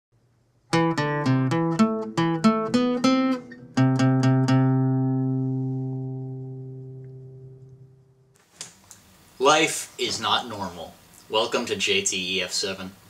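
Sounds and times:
plucked guitar tune: 0.7 - 8.4.

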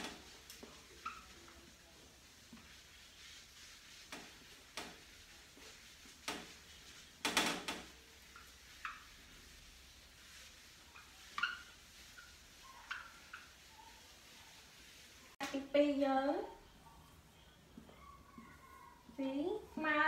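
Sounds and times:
marker squeaks on whiteboard: 0.0 - 15.1
eraser scraping whiteboard: 0.0 - 15.4.

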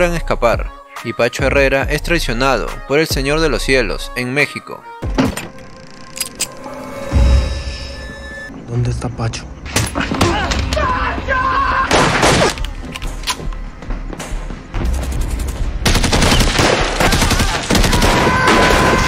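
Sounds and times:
background music: 0.0 - 19.0
gunshots from handguns and rifles: 11.9 - 13.4, 14.7 - 19.0.

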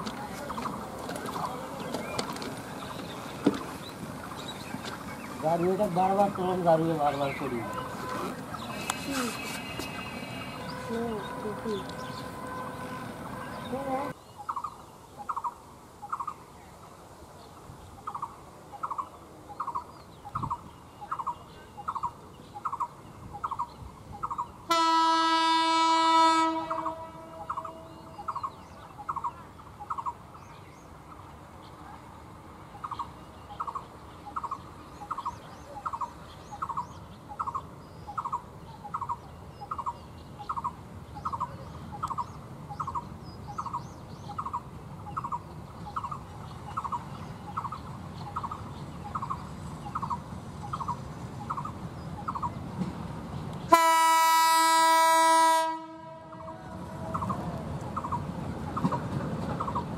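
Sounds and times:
locomotive horn blast: 7.5 - 14.1, 24.7 - 28.2, 53.7 - 56.9.

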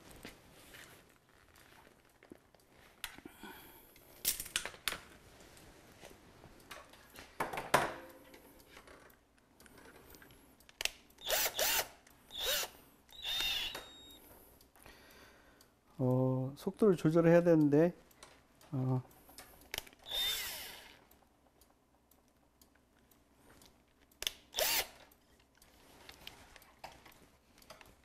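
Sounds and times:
cordless drill spinning: 11.2 - 14.2, 20.0 - 21.0, 24.5 - 25.1.

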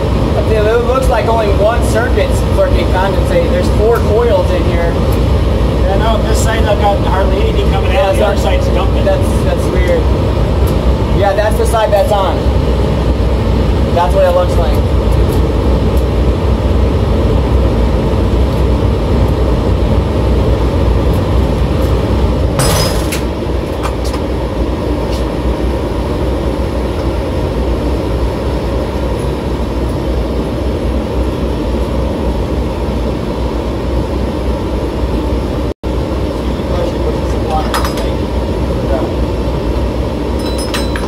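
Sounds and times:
rooftop air unit running: 0.0 - 41.0
metal door clunk: 22.6 - 23.3.

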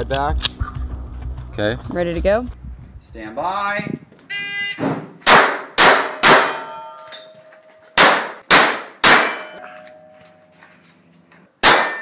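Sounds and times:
pistol shots: 5.2 - 6.7, 8.0 - 9.6, 11.6 - 12.0
steel target ringing: 5.3 - 10.6, 11.6 - 12.0.

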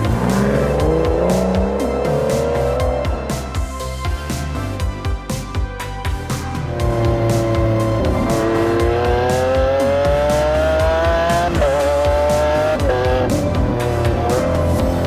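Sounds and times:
sports car engine accelerating: 0.0 - 4.0, 6.6 - 15.0
background music: 0.0 - 15.0.

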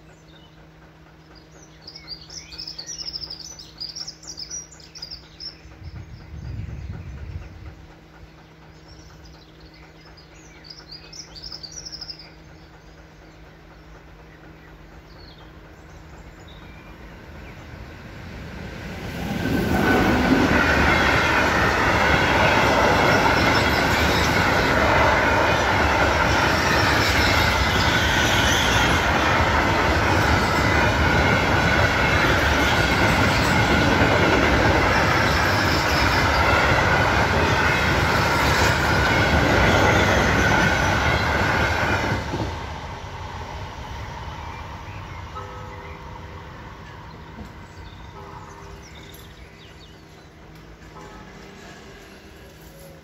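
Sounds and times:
birds chirping: 0.0 - 18.3, 43.9 - 52.2
freight train passing: 0.0 - 53.0.

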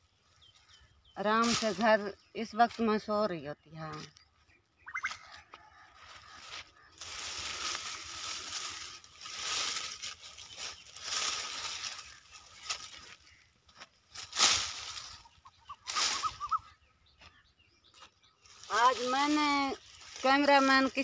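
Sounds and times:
dry branches rustling and crackling: 0.0 - 21.0
faint bird calls: 4.0 - 9.7, 10.3 - 20.2.

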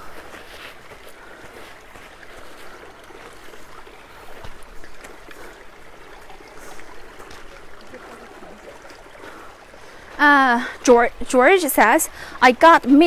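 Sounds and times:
footsteps on stones: 0.0 - 5.3
brook trickling over rocks: 0.0 - 13.0.

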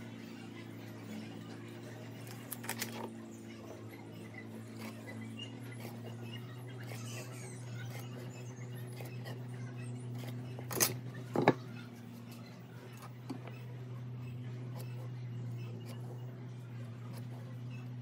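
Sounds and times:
pen scratching on wood: 4.7 - 11.5, 14.3 - 18.0.

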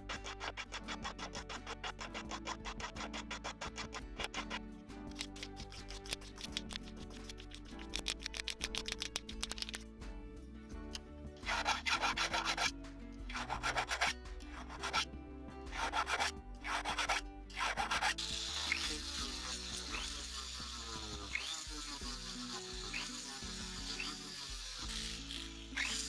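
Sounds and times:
hand file rasping on metal: 0.0 - 9.8, 11.4 - 15.1, 15.7 - 26.0
rotary tool hissing: 15.7 - 26.0.

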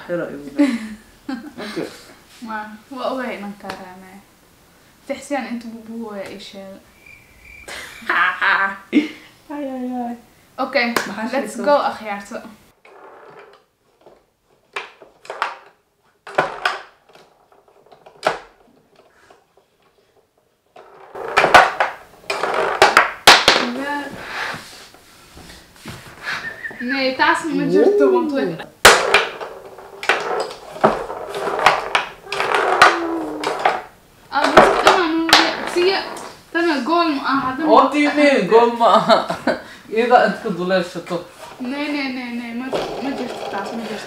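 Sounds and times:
foosball ball and rods clacking: 12.8 - 23.8, 28.8 - 36.5, 42.6 - 44.0.

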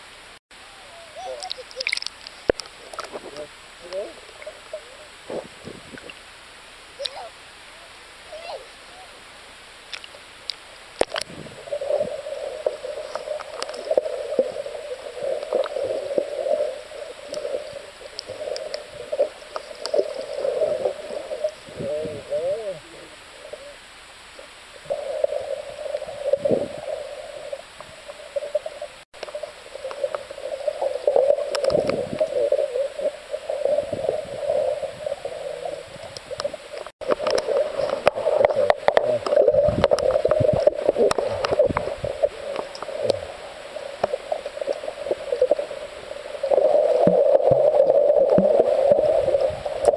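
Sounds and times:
underwater clicks: 1.3 - 4.5, 9.9 - 11.4, 12.6 - 14.6, 17.2 - 21.1, 31.0 - 32.5, 36.0 - 45.7, 46.5 - 49.9
muffled underwater water sloshing: 9.7 - 49.9.

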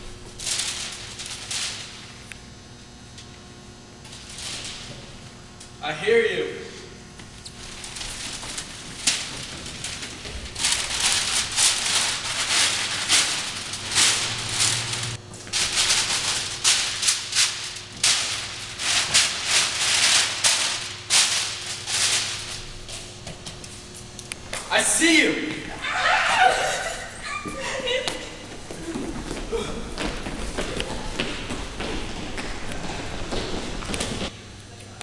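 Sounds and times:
rustling rattling bursts: 0.4 - 2.1, 7.5 - 23.1.

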